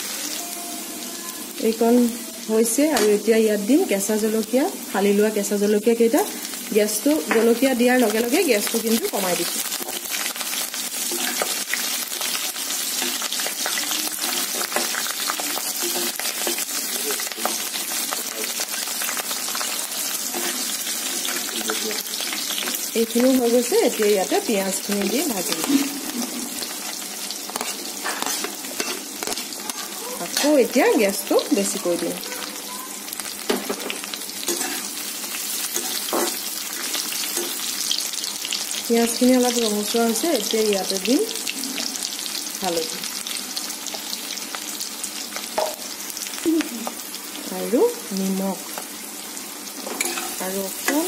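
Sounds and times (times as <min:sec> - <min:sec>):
hot oil sizzling: 0:00.0 - 0:51.0
metal spoon scraping pan: 0:20.3 - 0:21.9, 0:27.5 - 0:29.5, 0:34.5 - 0:35.0, 0:35.6 - 0:37.6, 0:49.9 - 0:51.0.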